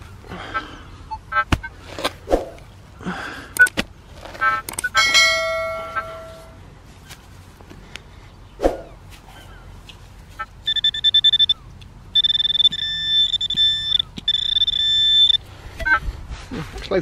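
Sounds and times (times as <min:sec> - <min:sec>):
pinpointer beeps: 0:04.4 - 0:06.4, 0:10.6 - 0:16.0
high electronic tone: 0:04.4 - 0:06.6, 0:10.6 - 0:16.0.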